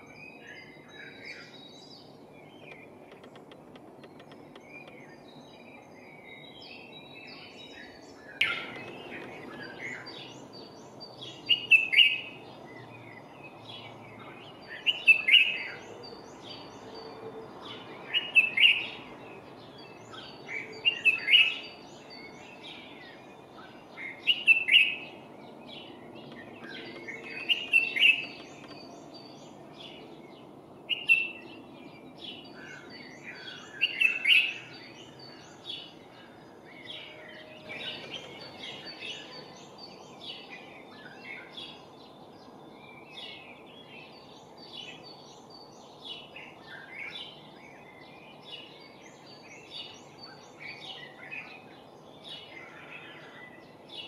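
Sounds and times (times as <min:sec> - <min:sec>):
low background noise: 0:00.0 - 0:54.0.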